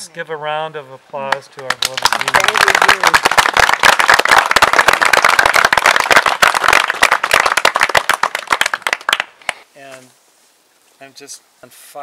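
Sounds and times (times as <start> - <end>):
close hands clapping: 1.3 - 9.6
small group applauding: 1.3 - 9.6.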